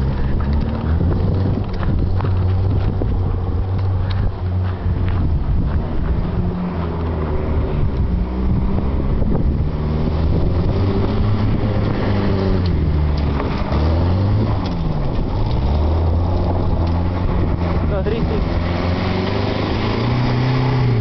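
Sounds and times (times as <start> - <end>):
pickup engine revving hard: 5.6 - 21.0.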